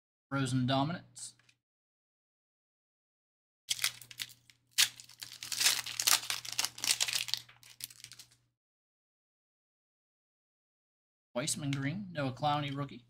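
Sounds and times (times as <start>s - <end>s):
foil wrapper crinkling: 3.7s - 8.4s.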